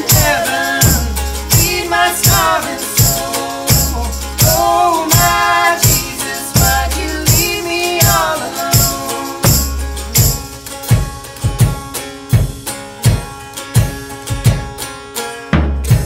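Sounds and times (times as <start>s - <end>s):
person singing: 0.0s - 9.8s
drum beat with cymbals: 0.0s - 14.9s, 15.5s - 16.0s
box-bodied guitar: 0.0s - 16.0s.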